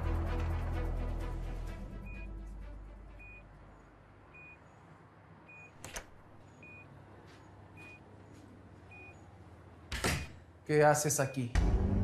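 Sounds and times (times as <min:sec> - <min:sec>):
patient monitor beeping: 0:03.2 - 0:04.9, 0:05.5 - 0:09.5, 0:11.0 - 0:11.6.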